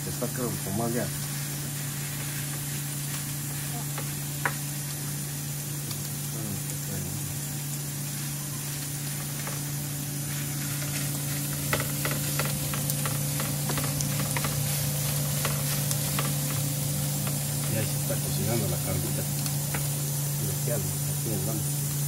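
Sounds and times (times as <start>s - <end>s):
meat and onions sizzling: 0.0s - 22.0s
utensils clicking and tapping: 10.6s - 20.0s.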